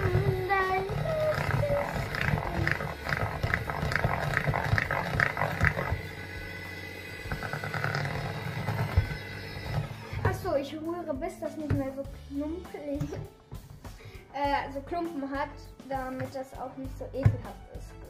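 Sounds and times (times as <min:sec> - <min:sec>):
hand mixer beaters whirring: 0:00.0 - 0:10.7.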